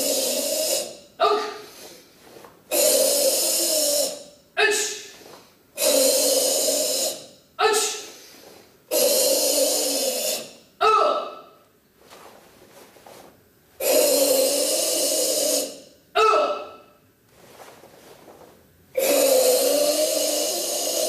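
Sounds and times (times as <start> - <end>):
loud hissing exhalations: 0.0 - 1.0, 1.6 - 4.2, 5.8 - 7.3, 8.0 - 10.6, 13.8 - 15.8, 19.0 - 21.0
sharp voice calls: 0.0 - 1.8, 2.7 - 5.2, 5.8 - 8.2, 8.9 - 11.6, 13.8 - 17.0, 19.0 - 21.0.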